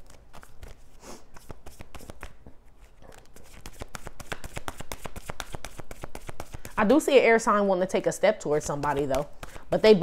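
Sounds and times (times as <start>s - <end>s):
cards being shuffled: 0.0s - 6.8s.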